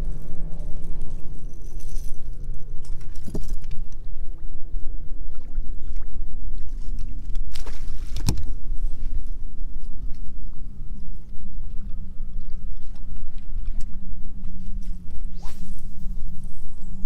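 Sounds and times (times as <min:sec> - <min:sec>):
steady low rumble: 0:00.0 - 0:17.0
water lapping against boat hull: 0:05.3 - 0:15.3.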